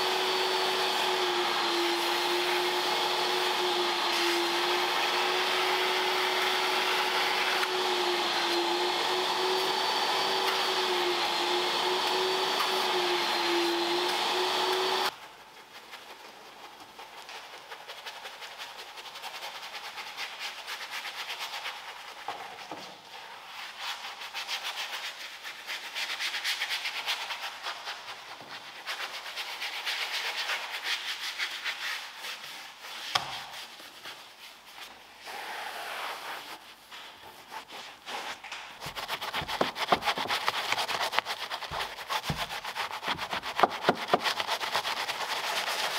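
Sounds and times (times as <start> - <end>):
vacuum cleaner whine: 0.0 - 15.1
scratchy scrubbing strokes: 0.0 - 22.3, 23.3 - 45.9.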